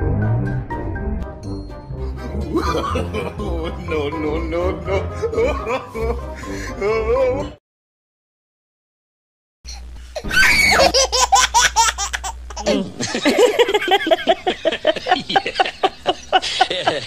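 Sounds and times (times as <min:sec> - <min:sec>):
person laughing: 0:02.2 - 0:07.4, 0:12.6 - 0:17.0.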